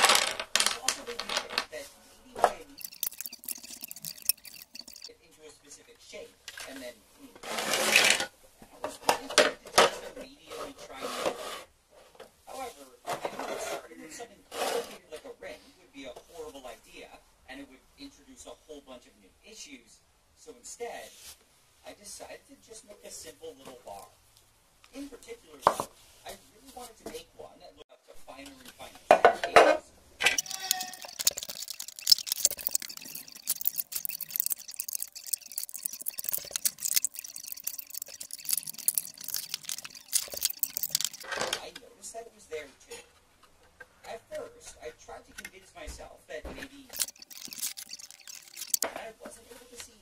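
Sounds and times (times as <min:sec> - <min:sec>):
plastic pieces clattering: 0:00.0 - 0:01.7, 0:30.3 - 0:41.6
plastic pieces knocking on wood: 0:00.0 - 0:01.7.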